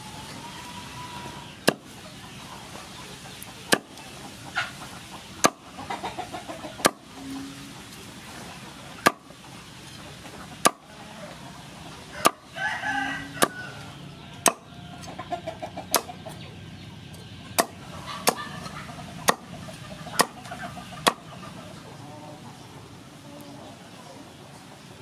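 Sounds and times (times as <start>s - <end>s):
chickens clucking: 0.0s - 25.0s
knife chopping on wooden board: 1.6s - 1.8s, 3.7s - 3.9s, 9.0s - 9.2s.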